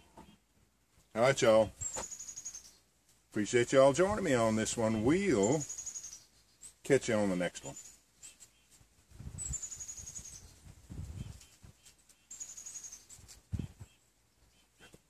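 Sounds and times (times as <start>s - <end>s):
songbird high calls: 1.8s - 2.8s, 4.9s - 6.8s, 9.4s - 10.6s, 11.2s - 15.0s.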